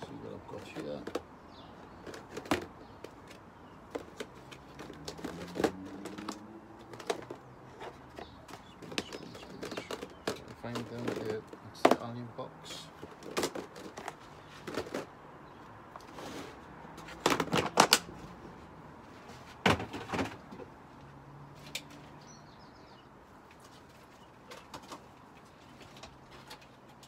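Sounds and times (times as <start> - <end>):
containers knocking and clattering: 0.4 - 12.2, 12.9 - 15.2.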